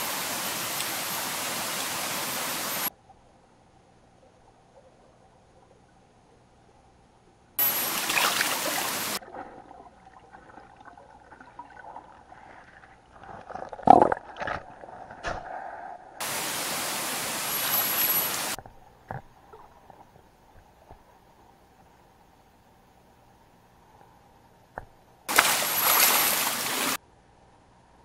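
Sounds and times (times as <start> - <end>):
river water rushing underwater: 0.0 - 2.9, 7.6 - 18.6, 25.3 - 27.0
soft watery murmur: 0.0 - 28.0.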